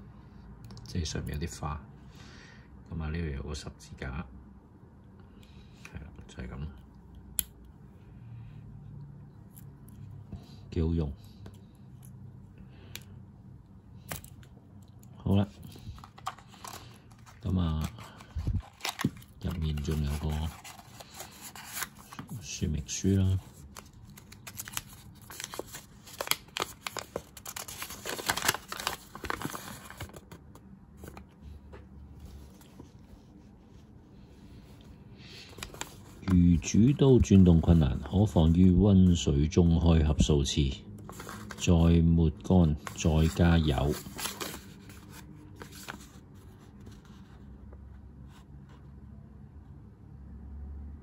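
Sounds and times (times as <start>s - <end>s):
faint low hum: 0.0s - 51.0s
paper leaflet rustling and crinkling: 15.2s - 39.2s, 41.0s - 41.8s, 42.7s - 47.4s.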